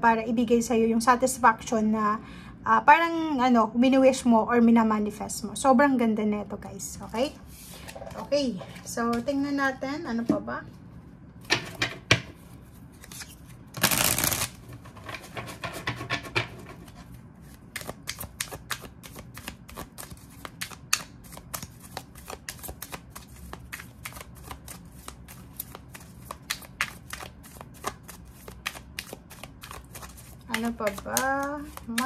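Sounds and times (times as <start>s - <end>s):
cards being shuffled: 12.7s - 15.8s, 16.7s - 32.0s.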